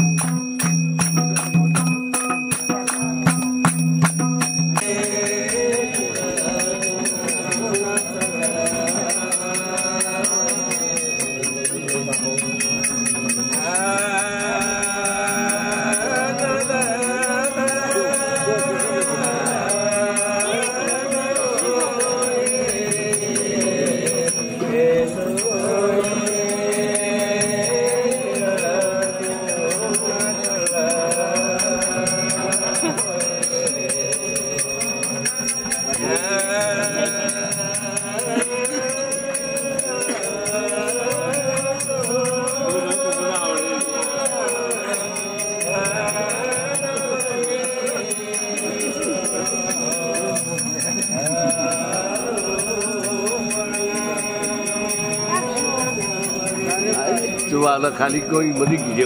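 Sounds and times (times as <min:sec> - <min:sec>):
rhythmic jingling: 0:00.0 - 0:59.0
group of voices chanting: 0:35.7 - 0:57.5.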